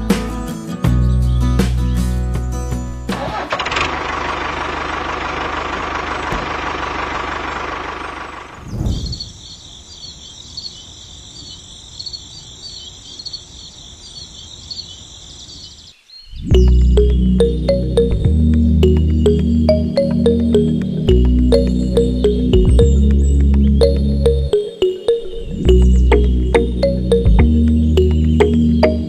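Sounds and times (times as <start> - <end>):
brief thump: 6.3 - 6.6
high insect chirping: 7.2 - 29.0.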